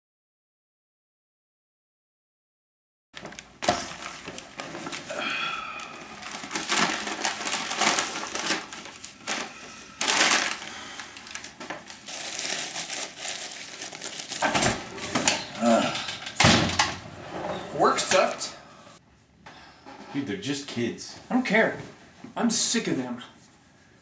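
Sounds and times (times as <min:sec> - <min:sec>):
wrapper crinkling and rustling: 0:03.2 - 0:16.3.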